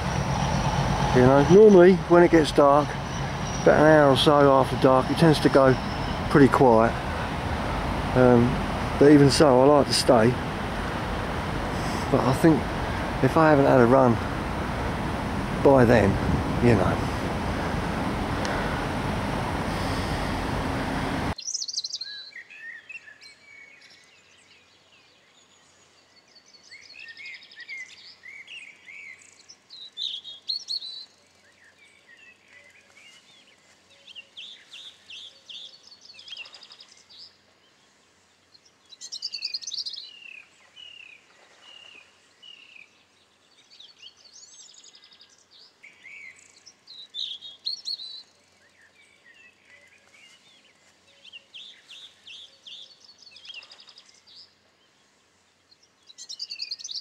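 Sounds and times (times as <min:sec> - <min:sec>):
small birds chirping: 0:00.0 - 0:10.4, 0:21.3 - 0:57.0
wind buffeting microphone: 0:00.0 - 0:21.4.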